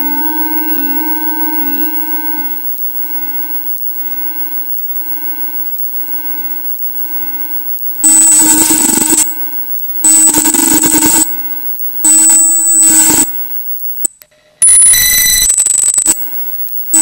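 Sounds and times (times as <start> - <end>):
low buzzy test tone: 0.0 - 13.6
harsh hiss with high whistle: 0.0 - 14.1.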